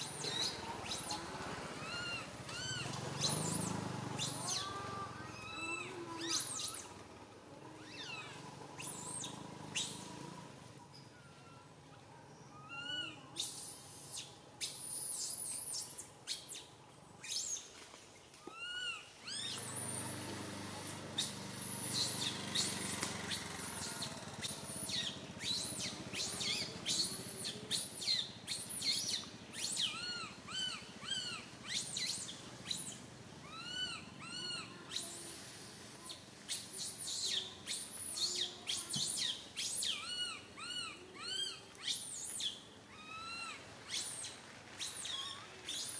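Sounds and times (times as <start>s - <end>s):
baby monkey crying: 0.1s - 6.9s, 18.5s - 38.4s, 42.9s - 45.8s.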